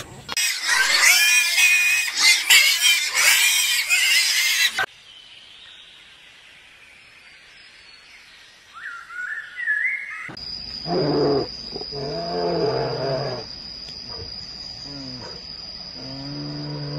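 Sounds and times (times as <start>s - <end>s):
faint high chirping glides: 4.9s - 16.9s
bear moaning: 10.9s - 13.5s, 16.0s - 16.9s.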